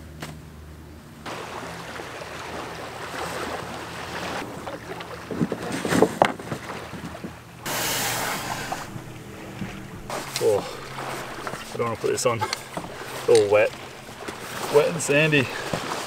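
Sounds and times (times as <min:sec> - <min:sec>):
small waves washing on sand: 0:01.2 - 0:16.0
knocks and thumps in canoe: 0:01.3 - 0:16.0.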